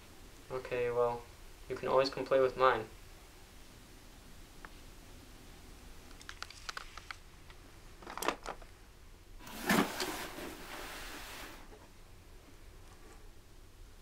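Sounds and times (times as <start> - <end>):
cardboard scraping and rustling: 9.4 - 12.0.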